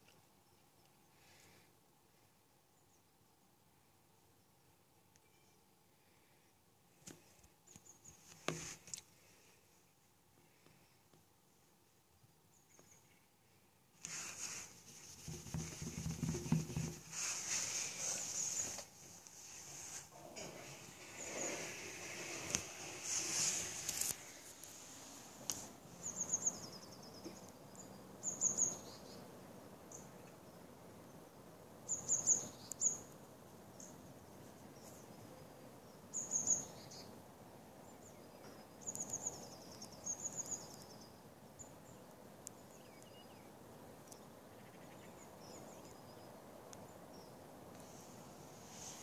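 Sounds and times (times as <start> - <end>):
faint steady hum: 0.0 - 49.0
small bird singing: 25.9 - 31.2, 31.8 - 47.4.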